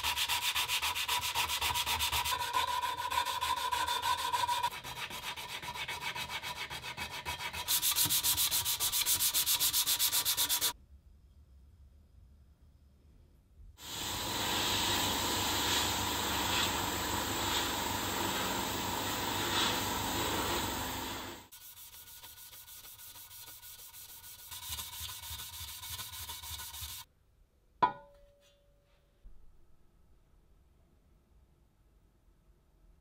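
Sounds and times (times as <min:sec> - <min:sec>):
abrasive pad scrubbing metal: 0:13.8 - 0:27.0.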